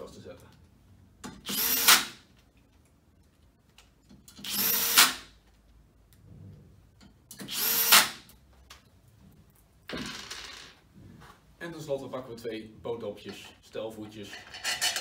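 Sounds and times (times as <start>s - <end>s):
cordless drill driving screws: 1.4s - 2.2s, 4.4s - 5.2s, 7.4s - 8.2s.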